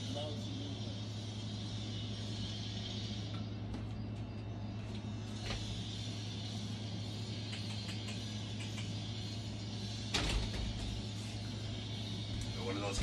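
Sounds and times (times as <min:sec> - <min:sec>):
low room hum: 0:00.0 - 0:13.0
light clicks: 0:07.4 - 0:09.0.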